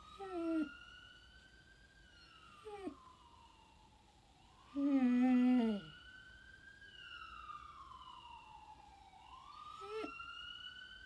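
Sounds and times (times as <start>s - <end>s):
dog howling: 0.0s - 0.7s
faint siren wailing: 0.0s - 11.0s.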